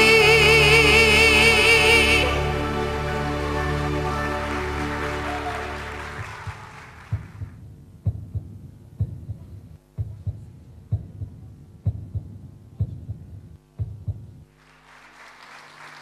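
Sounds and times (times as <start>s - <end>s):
song: 0.0s - 6.8s
heartbeat sound effect: 6.4s - 14.4s.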